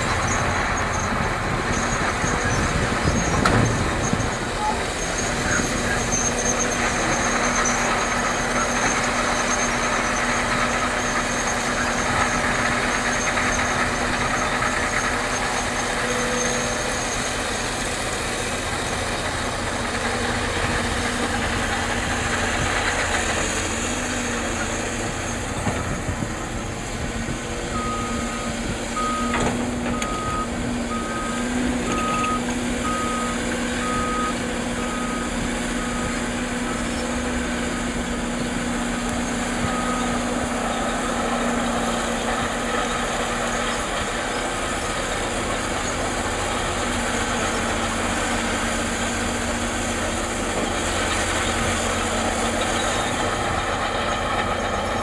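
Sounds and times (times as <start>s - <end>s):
diesel machinery running: 0.0s - 55.0s
reversing alarm beeping: 27.7s - 36.9s.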